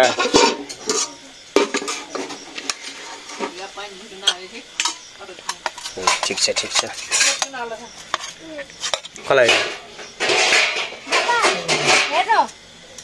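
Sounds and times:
spoon scraping steel plates: 4.2s - 12.3s.

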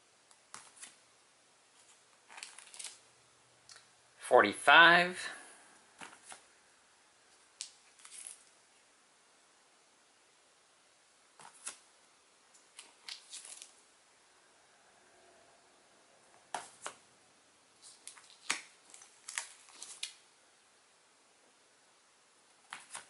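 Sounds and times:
plastic sleeves crinkling and slapping: 2.3s - 3.0s, 17.8s - 20.2s.

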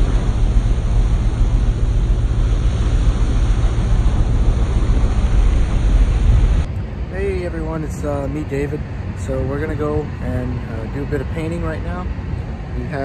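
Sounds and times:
wake water rushing: 0.0s - 6.7s
deep rumble: 0.0s - 13.0s.

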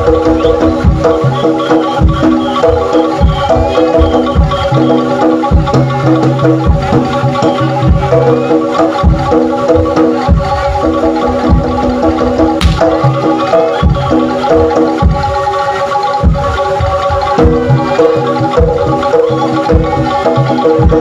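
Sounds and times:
gamelan music: 0.0s - 21.0s.

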